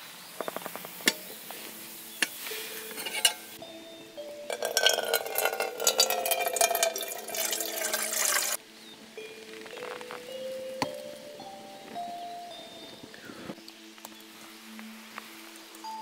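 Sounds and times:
metal kettle clinks and knocks: 2.8 - 3.5, 4.4 - 8.6
water pouring into kettle: 4.5 - 8.6.

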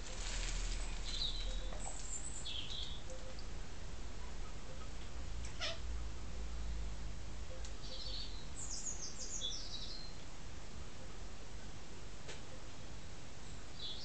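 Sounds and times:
cat mewing: 5.4 - 5.9.

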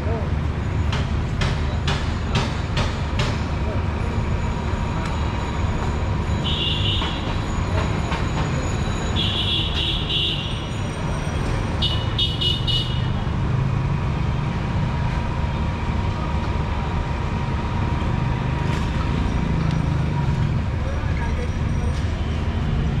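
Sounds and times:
street traffic rumble: 0.0 - 23.0
high-pitched vehicle horn: 6.4 - 7.2.

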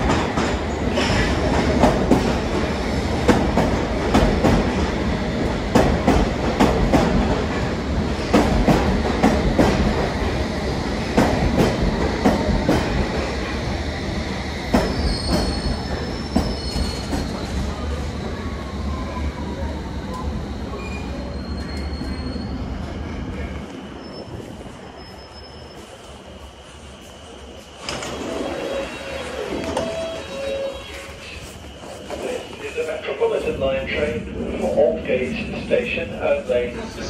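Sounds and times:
train braking to a stop: 14.3 - 37.0
high brake squeals: 14.9 - 17.2, 20.1 - 22.7, 23.3 - 26.2, 28.4 - 32.4.

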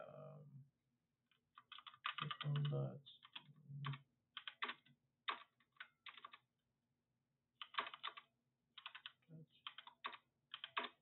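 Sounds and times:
typing on computer keyboard: 1.6 - 6.4, 7.6 - 11.0.

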